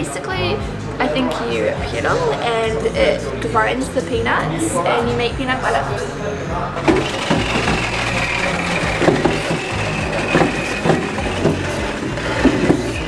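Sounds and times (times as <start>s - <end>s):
grain mill crunching nuts: 6.8s - 13.0s
steady mechanical drone: 6.8s - 13.0s.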